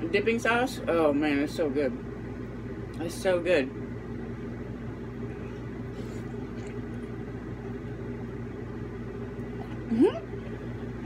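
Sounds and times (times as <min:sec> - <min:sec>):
low machine hum: 0:00.0 - 0:11.0
soft eating noises: 0:05.1 - 0:11.0.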